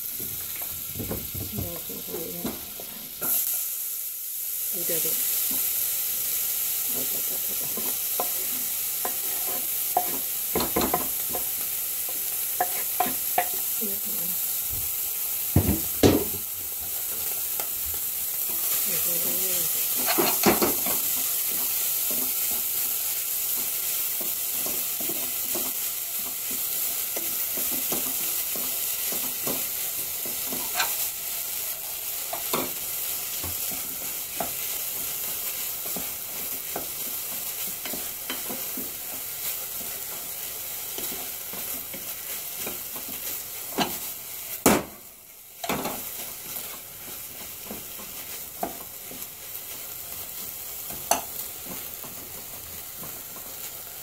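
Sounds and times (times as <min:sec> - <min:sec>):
food sizzling in butter: 0:00.0 - 0:54.0
utensil scraping pan: 0:30.5 - 0:31.0.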